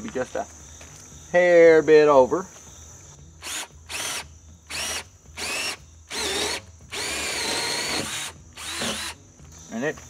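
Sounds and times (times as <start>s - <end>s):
cordless drill whining: 3.4s - 9.2s.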